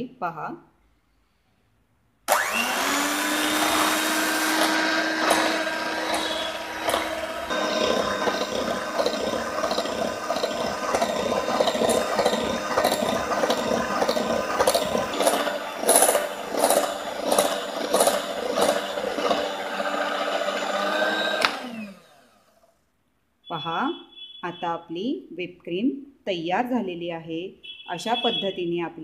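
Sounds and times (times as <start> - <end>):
electric hand mixer running: 2.3 - 22.6.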